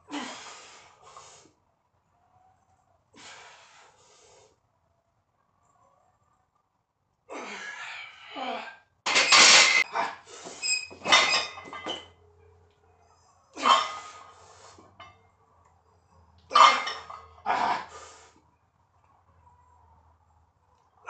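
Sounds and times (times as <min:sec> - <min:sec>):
person breathing heavily: 0:00.1 - 0:01.6, 0:03.1 - 0:04.6.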